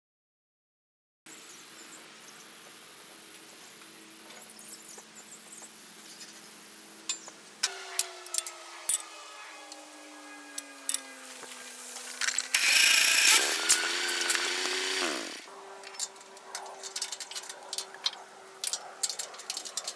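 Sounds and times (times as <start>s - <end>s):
mechanical hum: 1.3s - 19.9s
low drone falling in pitch: 7.6s - 12.5s.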